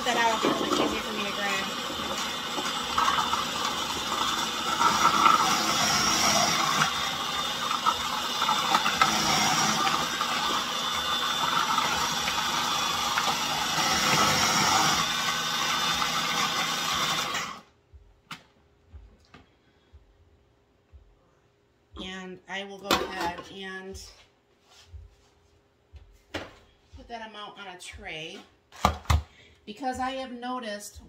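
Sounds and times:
food processor shredding carrots: 0:00.0 - 0:17.7.

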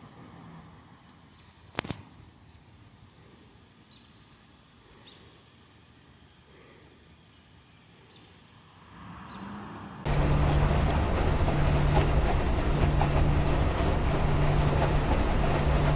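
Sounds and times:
faint outdoor background: 0:00.0 - 0:15.9
washing machine drum tumbling: 0:10.1 - 0:15.9.

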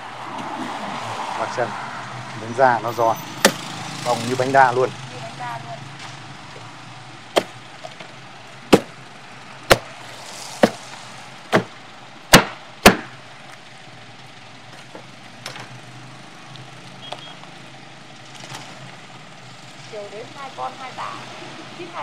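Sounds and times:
meat cleaver chopping bone: 0:07.4 - 0:07.6, 0:08.7 - 0:08.9, 0:11.5 - 0:11.7, 0:12.3 - 0:13.1.

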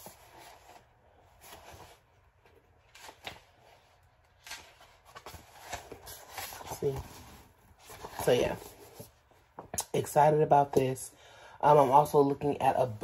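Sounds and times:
book pages flipping: 0:00.0 - 0:09.8.

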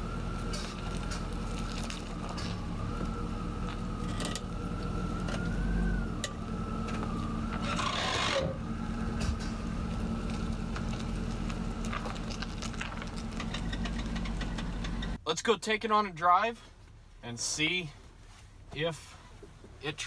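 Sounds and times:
pickup truck engine running: 0:00.0 - 0:15.2
thin wavering whine: 0:02.0 - 0:12.1.

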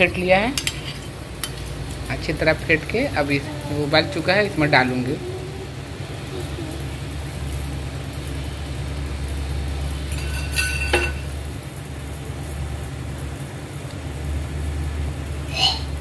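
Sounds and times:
soup boiling: 0:00.2 - 0:15.4
metal bowl clink: 0:10.1 - 0:11.4.

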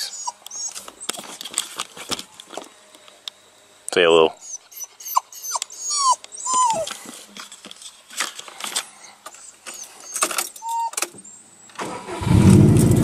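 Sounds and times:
dog whining: 0:00.0 - 0:01.4, 0:04.4 - 0:07.1, 0:09.0 - 0:11.2.

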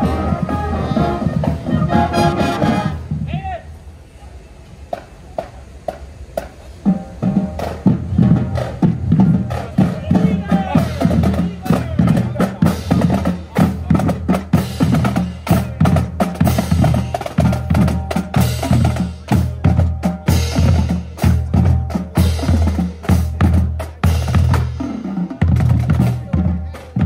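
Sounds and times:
brass chords: 0:00.0 - 0:03.3
bass drums: 0:00.0 - 0:03.4, 0:05.0 - 0:27.0
snare drums: 0:00.0 - 0:03.4, 0:04.9 - 0:27.0.

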